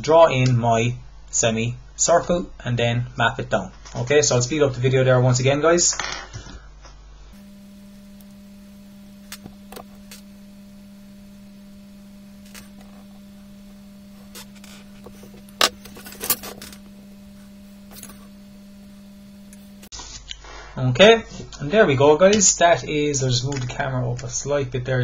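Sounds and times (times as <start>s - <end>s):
steady low hum: 6.4s - 19.9s
drawing instruments clicking and tapping: 14.2s - 16.9s.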